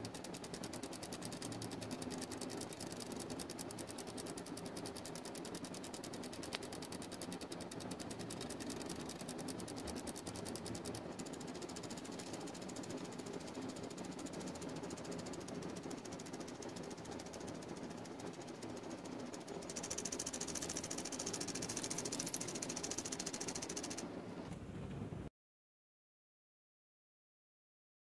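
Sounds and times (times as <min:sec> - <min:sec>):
fast mechanical clock ticking: 0:00.0 - 0:24.1
high hiss: 0:08.0 - 0:24.0.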